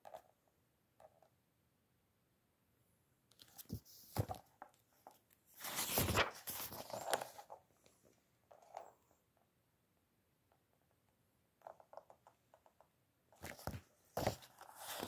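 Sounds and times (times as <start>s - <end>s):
book pages turning: 3.4s - 4.4s, 5.6s - 7.5s, 13.4s - 15.0s.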